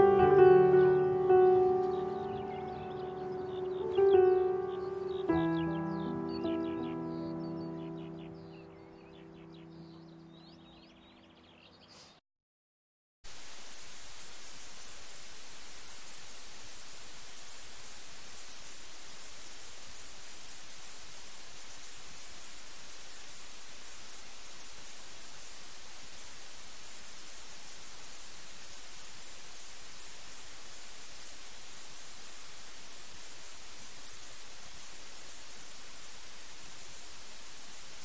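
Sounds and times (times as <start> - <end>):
loud static hiss: 13.3 - 38.0.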